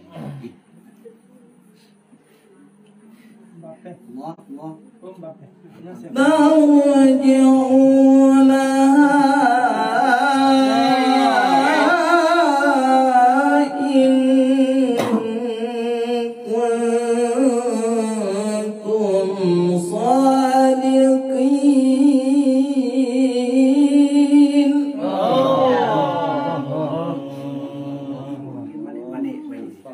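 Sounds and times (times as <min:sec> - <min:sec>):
man chanting into microphone: 0:06.0 - 0:29.9.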